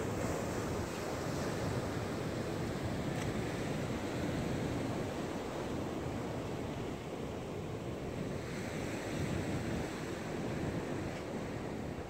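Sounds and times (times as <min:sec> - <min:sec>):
wind on microphone: 0:00.0 - 0:12.0.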